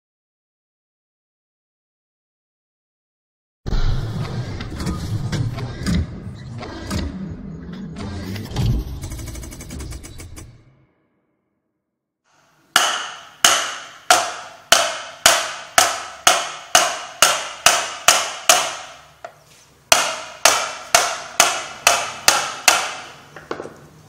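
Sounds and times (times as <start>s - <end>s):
hammer blows on metal: 12.8s - 19.2s.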